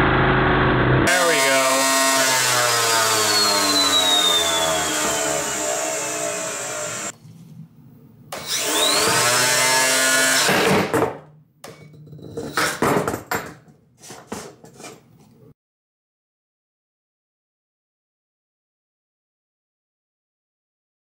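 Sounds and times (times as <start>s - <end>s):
spinner blade whining: 1.1s - 7.1s
sharp knocks and clatters: 10.5s - 15.2s.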